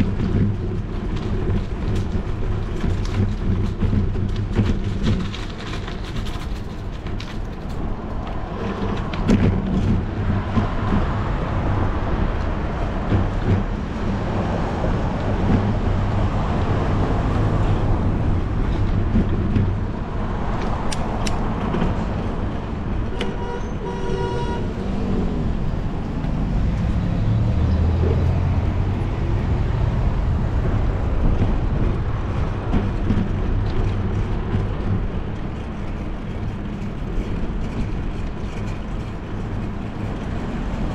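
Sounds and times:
car traffic: 0.0s - 40.9s
wind and road rumble: 0.0s - 40.9s
short horn tone: 23.1s - 24.8s.

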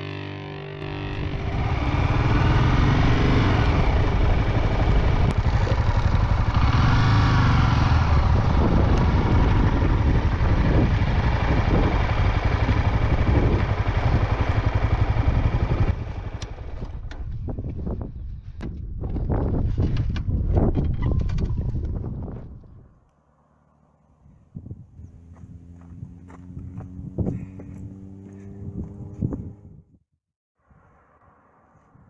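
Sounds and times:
motorcycle engine running: 0.0s - 18.2s, 24.8s - 29.8s.

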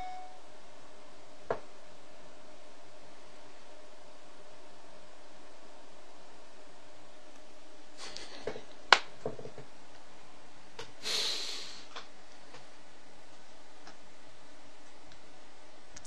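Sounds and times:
breath close to microphone: 11.0s - 11.9s.

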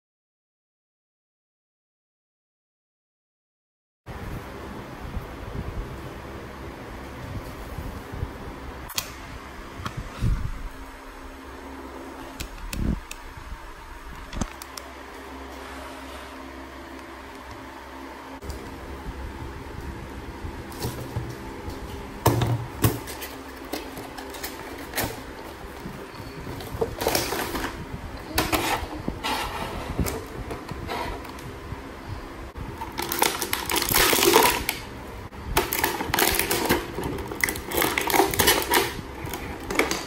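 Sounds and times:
plastic tray crinkling: 32.8s - 34.8s.

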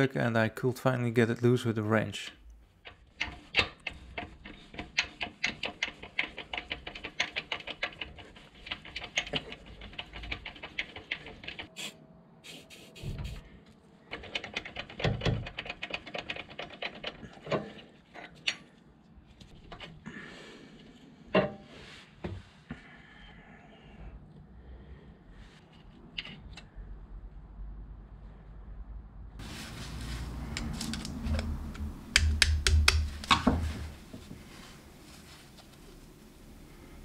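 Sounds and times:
rapid metallic clicking: 2.8s - 11.7s, 14.1s - 17.5s.

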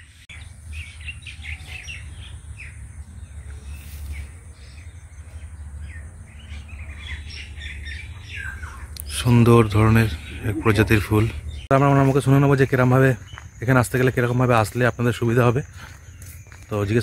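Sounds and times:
small birds chirping: 0.0s - 17.0s
low steady rumble: 0.3s - 11.8s.

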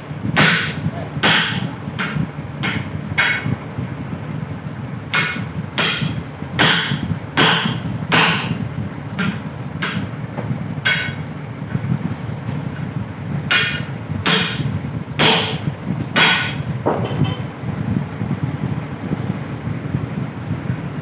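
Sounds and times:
steady low hum: 0.0s - 21.0s
hand tool striking tyre: 0.4s - 3.5s, 5.1s - 8.6s, 9.2s - 10.1s, 10.8s - 11.2s, 13.5s - 15.6s, 16.2s - 17.0s.

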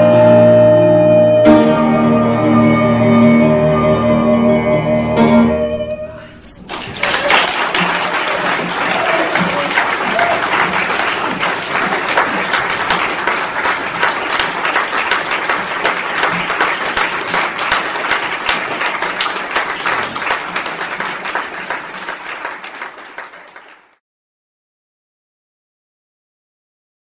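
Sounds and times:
audience applauding: 6.6s - 24.0s.

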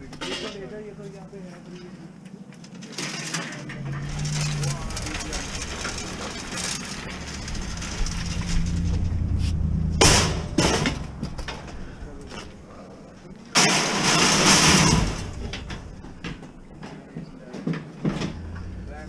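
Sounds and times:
metal frame clanking: 3.0s - 12.8s, 13.6s - 16.7s.

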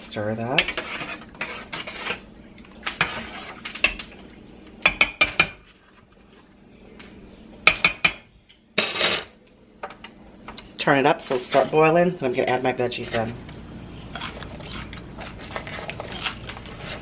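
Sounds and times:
metal spoon scraping a pot: 0.4s - 2.2s, 2.8s - 4.0s, 11.2s - 13.4s, 15.2s - 17.0s.

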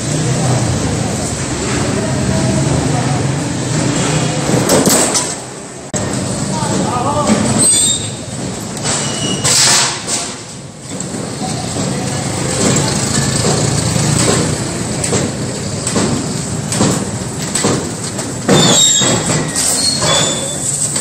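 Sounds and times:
cart wheels rolling: 0.0s - 21.0s
steel sheets rattling and clanking: 3.8s - 5.6s, 6.4s - 21.0s
high squeals: 7.4s - 9.7s, 18.5s - 20.9s.

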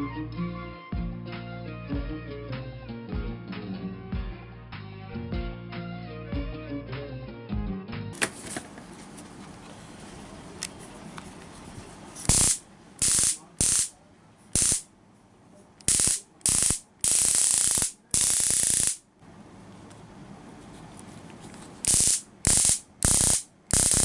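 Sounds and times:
stun gun crackling: 12.2s - 13.9s, 14.6s - 14.9s, 15.8s - 19.0s, 21.8s - 24.0s.

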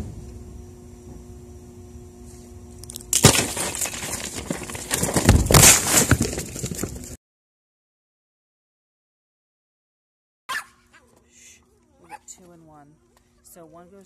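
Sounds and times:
trap falling shut with clatter: 2.8s - 6.6s
rattling and scuffling: 3.1s - 7.2s.

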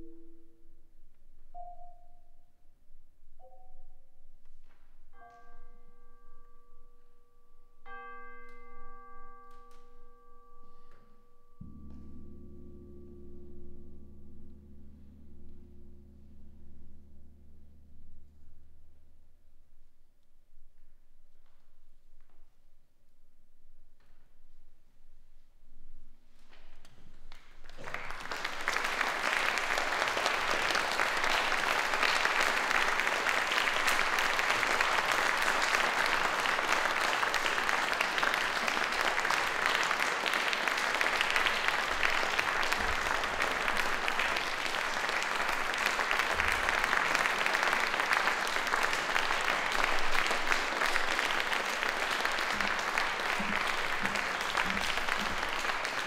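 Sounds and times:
audience applauding: 27.3s - 56.0s.

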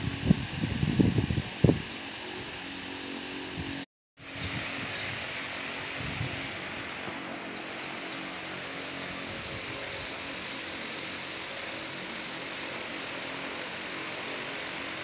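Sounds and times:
steady machine hum with hiss: 0.0s - 15.0s.

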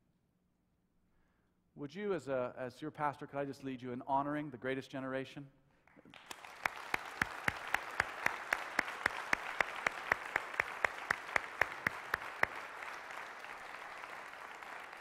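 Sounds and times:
person clapping nearby: 5.9s - 15.0s
crowd applauding: 6.0s - 15.0s.

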